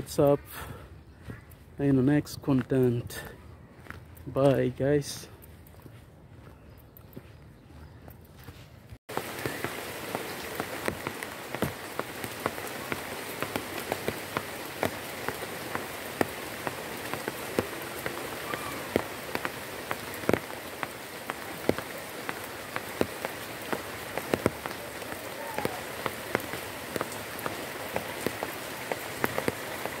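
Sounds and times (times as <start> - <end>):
rain on leaves: 9.1 - 30.0.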